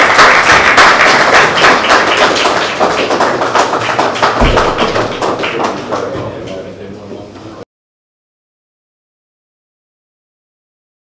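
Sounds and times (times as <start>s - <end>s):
audience applauding: 0.0s - 6.4s
dull thump: 4.4s - 5.2s.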